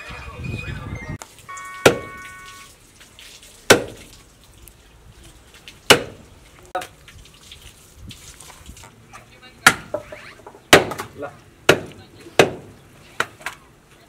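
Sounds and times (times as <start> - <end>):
cleaver chopping meat on wood: 3.7 - 4.0, 5.9 - 6.2, 10.7 - 11.1, 11.7 - 13.4.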